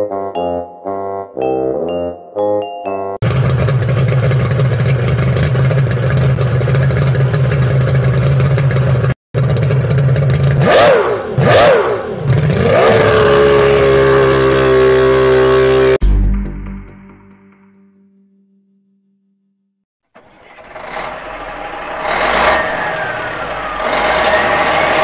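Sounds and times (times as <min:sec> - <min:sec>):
small two-stroke engine revving: 0:03.2 - 0:16.0, 0:20.2 - 0:25.0.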